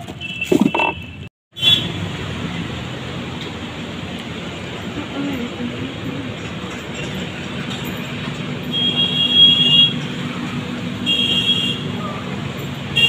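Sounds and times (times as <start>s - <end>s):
high steady beep: 0.5s - 1.0s.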